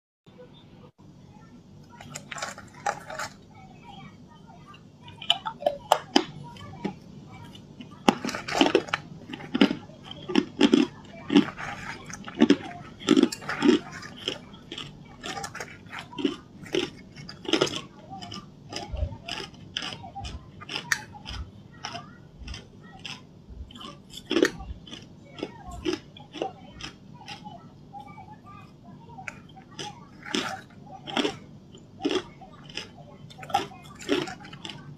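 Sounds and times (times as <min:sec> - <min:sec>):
chewing hard ice: 0:01.8 - 0:03.5, 0:04.6 - 0:34.9.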